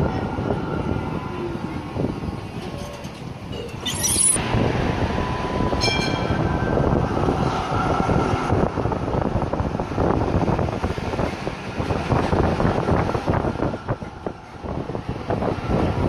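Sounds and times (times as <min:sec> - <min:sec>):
tram wheels and motors rumbling: 0:00.0 - 0:16.0
high-pitched screech: 0:03.8 - 0:04.4
short ringing tone: 0:03.8 - 0:04.4.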